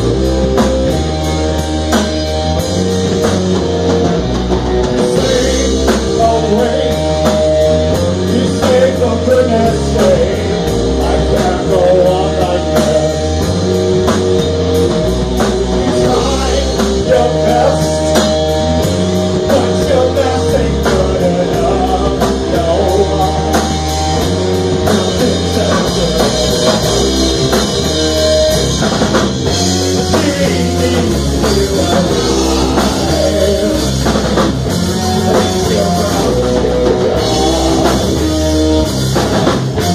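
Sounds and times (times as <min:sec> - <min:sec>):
drum kit: 0:00.0 - 0:39.9
electric guitar: 0:00.0 - 0:39.9
person singing: 0:05.1 - 0:13.6, 0:15.4 - 0:18.6, 0:19.4 - 0:24.3, 0:24.9 - 0:27.2, 0:30.0 - 0:38.8.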